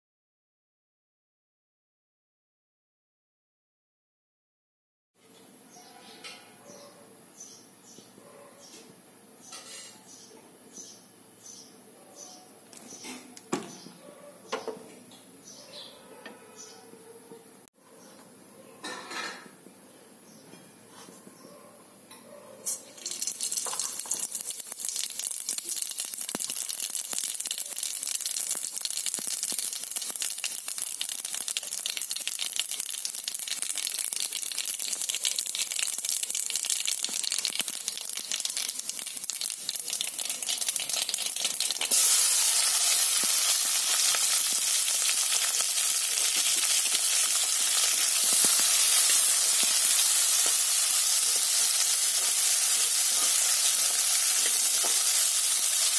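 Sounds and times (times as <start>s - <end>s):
seeds sizzling in hot oil: 22.8s - 55.9s.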